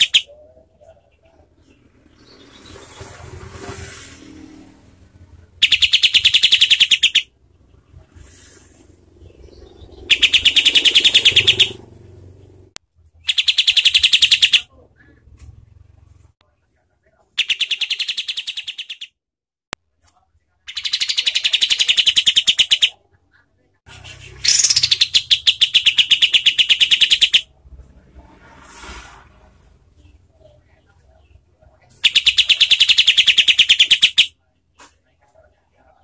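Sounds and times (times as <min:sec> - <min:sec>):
bulbul singing rapid notes: 0:00.0 - 0:00.3, 0:05.5 - 0:07.9, 0:09.1 - 0:11.9, 0:13.2 - 0:14.7, 0:20.7 - 0:23.0, 0:23.9 - 0:27.5, 0:32.0 - 0:34.3.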